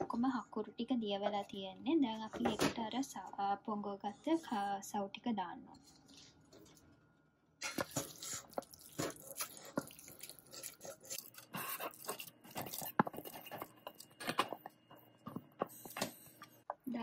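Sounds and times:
wet squelches: 7.7s - 13.0s.

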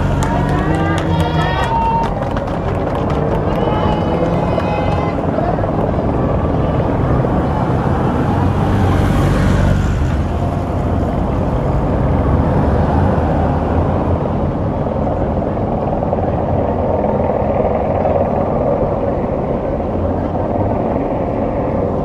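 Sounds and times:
steady low rumble: 0.0s - 22.0s
vehicles passing: 0.0s - 22.0s.

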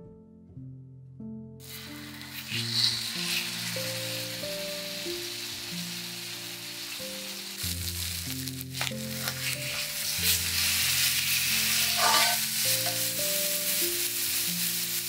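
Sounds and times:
steak sizzling in skillet: 1.6s - 15.0s
turner scraping pan: 1.7s - 4.5s, 8.4s - 13.8s.

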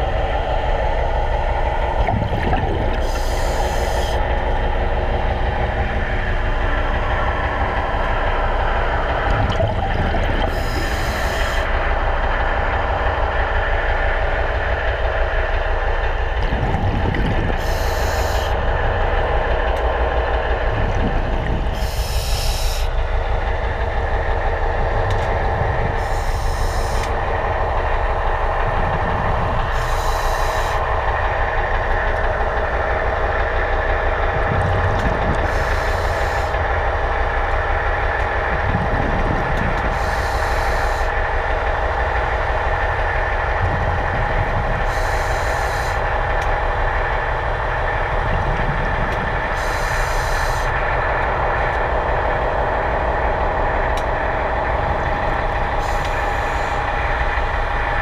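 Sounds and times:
underwater machinery drone: 0.0s - 58.0s
scuba regulator bubbles hissing: 1.9s - 4.2s.

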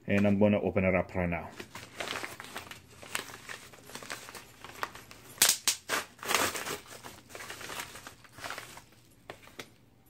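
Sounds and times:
packaging crinkling and tearing: 1.5s - 9.8s
loud packaging cracks: 5.4s - 8.8s.

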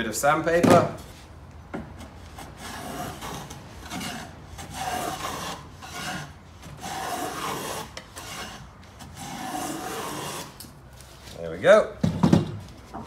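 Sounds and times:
hand plane shaving wood: 2.4s - 10.6s.

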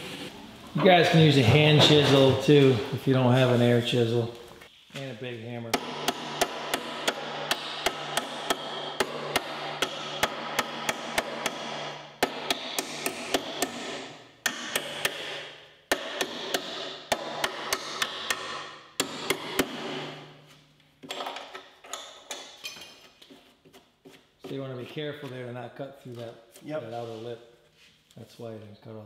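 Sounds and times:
hammer striking steel: 5.7s - 20.4s.

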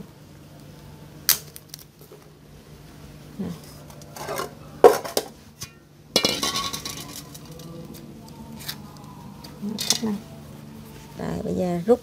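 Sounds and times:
colander and pot clattering: 4.1s - 7.7s.

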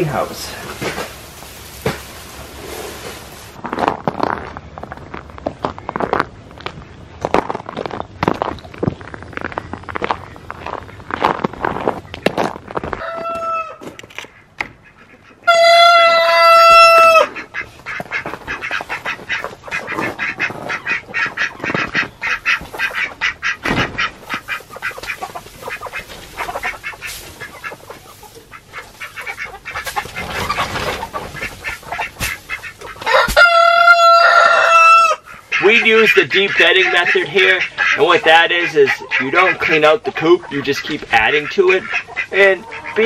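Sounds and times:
chickens clucking: 0.0s - 3.5s, 9.5s - 43.0s
rooster crowing: 13.0s - 13.8s, 15.5s - 17.3s, 33.1s - 35.2s.

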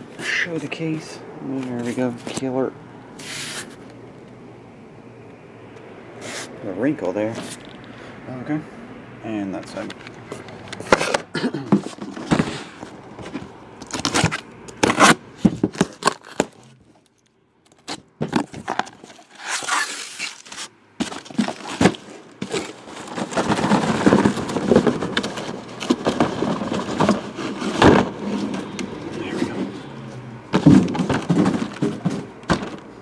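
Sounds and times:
cardboard box being opened: 17.9s - 29.8s.

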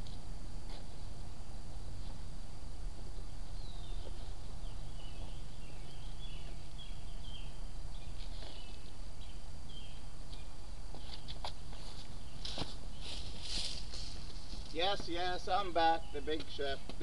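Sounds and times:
low outdoor background rumble: 0.0s - 17.0s
small bird chirping: 3.5s - 13.8s.

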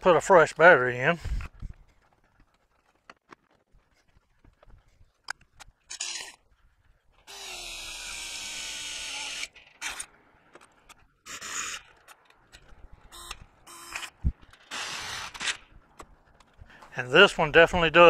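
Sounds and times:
cordless drill boring steel: 7.3s - 9.5s, 14.7s - 15.5s.

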